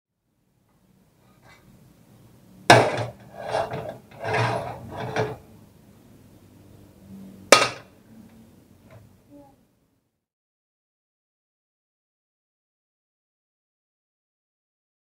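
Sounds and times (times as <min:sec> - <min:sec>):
kitchen clattering and scraping: 0:02.7 - 0:05.5, 0:07.5 - 0:07.9
sharp knock: 0:07.5 - 0:07.9.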